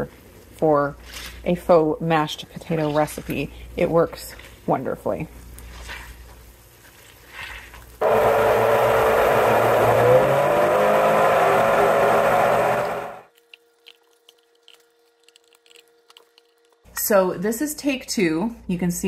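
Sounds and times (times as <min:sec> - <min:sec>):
blender motor running: 0:08.0 - 0:13.3.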